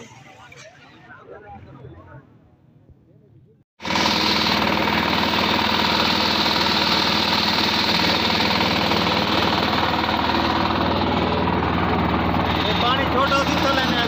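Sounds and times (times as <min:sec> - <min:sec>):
boat engine droning: 0:03.8 - 0:14.0.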